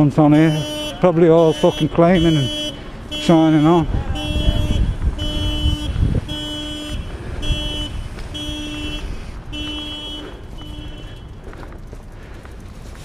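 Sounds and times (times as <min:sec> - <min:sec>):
electronic warning beeps: 0:00.4 - 0:11.0
wind rumble on microphone: 0:03.8 - 0:10.2.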